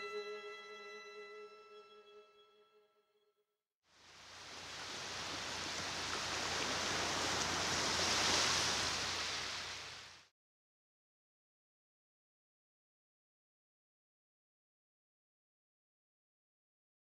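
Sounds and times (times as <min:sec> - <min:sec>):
surf washing onto beach: 0:04.0 - 0:10.3.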